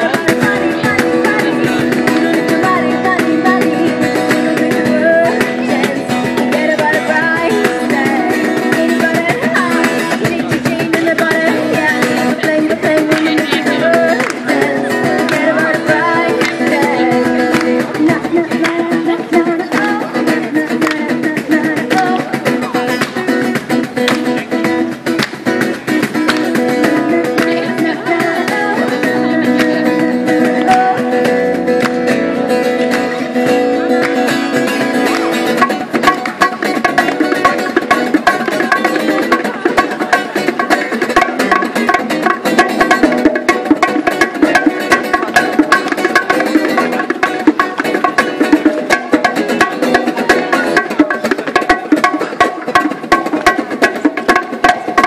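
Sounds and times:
woman singing into microphone: 0.0s - 23.0s, 26.6s - 31.8s, 36.0s - 49.0s
acoustic guitar: 0.0s - 55.0s
hand drums: 0.0s - 55.0s.

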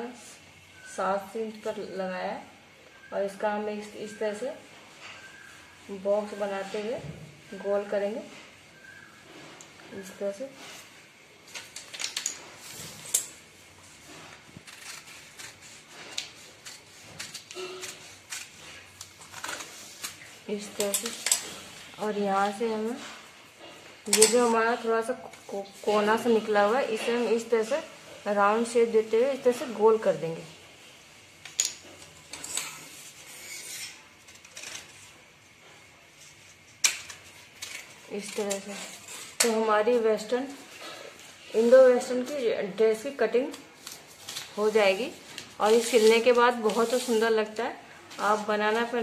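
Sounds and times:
scissors cutting newspaper: 14.0s - 23.1s, 36.2s - 41.0s, 41.6s - 47.6s
paper rustling: 43.0s - 47.4s.

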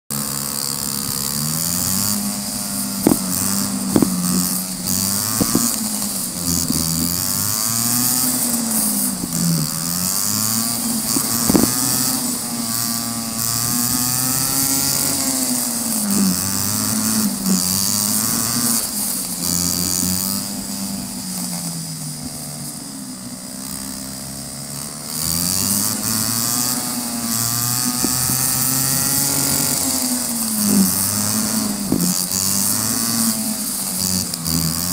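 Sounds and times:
go-kart engine running: 0.1s - 34.9s
wind on microphone: 2.8s - 8.0s, 10.7s - 12.2s.

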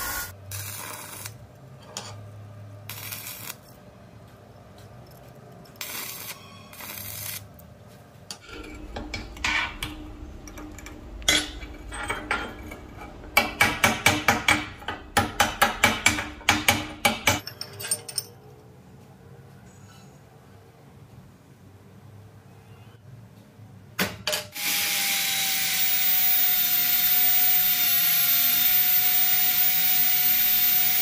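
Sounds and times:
welding arc crackling: 0.0s - 1.5s, 2.9s - 3.7s, 5.8s - 7.5s, 25.5s - 31.0s
steady low hum: 7.5s - 17.4s
chipping hammer tapping metal: 8.6s - 17.4s.

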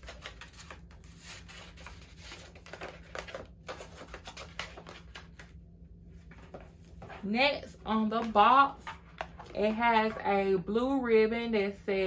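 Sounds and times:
paper packaging rustling: 0.0s - 5.6s.

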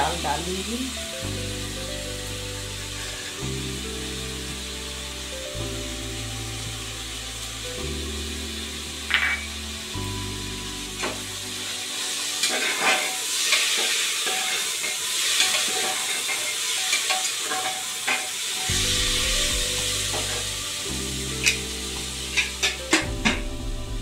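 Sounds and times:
vegetables sizzling in a pot: 0.0s - 24.0s
metal ladle scraping a pot: 12.0s - 20.6s.

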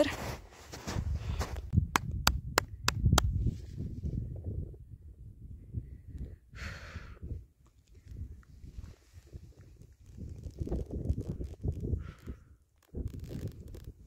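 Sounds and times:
footsteps in deep snow: 0.0s - 1.7s
breathy exhale: 6.5s - 7.2s.

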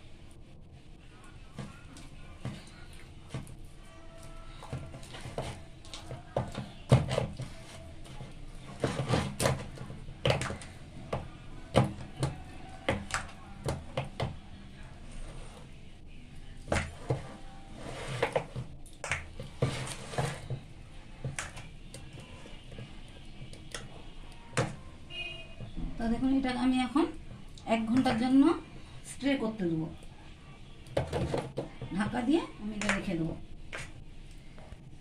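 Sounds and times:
hand slapping dough in a bowl: 9.4s - 14.4s, 18.2s - 20.6s, 32.8s - 34.0s.

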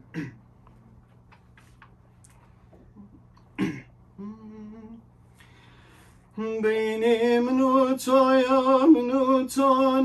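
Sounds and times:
man clearing his throat: 0.0s - 0.4s, 3.5s - 4.0s
man humming a note: 3.0s - 5.0s.

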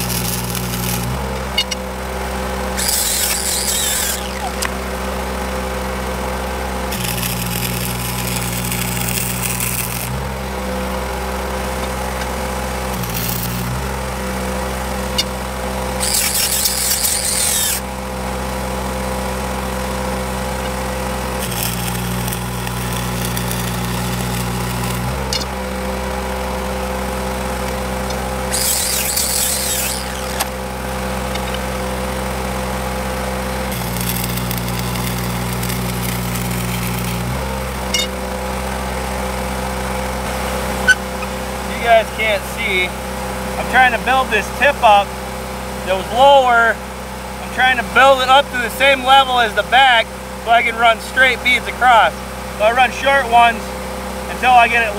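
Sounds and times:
welding arc crackle: 0.0s - 1.8s, 2.7s - 5.0s, 6.3s - 10.4s, 11.7s - 18.0s, 19.7s - 26.2s, 27.4s - 38.2s
engine humming: 0.0s - 54.9s.

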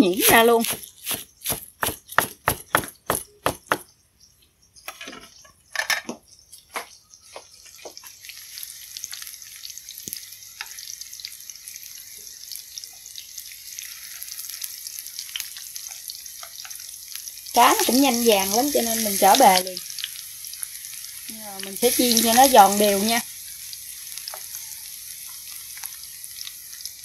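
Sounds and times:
oil sizzling in a pan: 0.0s - 2.3s, 6.8s - 27.0s
knife chopping on cutting board: 0.2s - 3.8s.

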